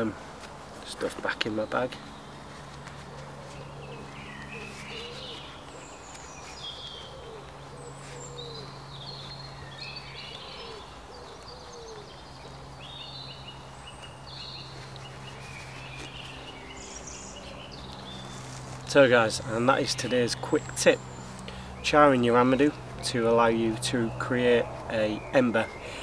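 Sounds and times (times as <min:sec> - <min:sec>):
birds singing: 0:00.0 - 0:26.0
steady low hum: 0:00.0 - 0:26.0
low hooting calls: 0:03.0 - 0:06.0, 0:06.6 - 0:13.0.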